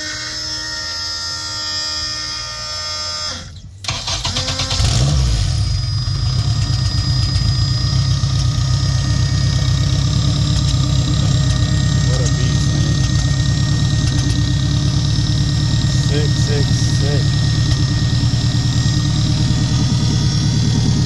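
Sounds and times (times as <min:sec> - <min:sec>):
car engine idling: 0:03.6 - 0:21.0
steady tonal whine: 0:05.2 - 0:21.0.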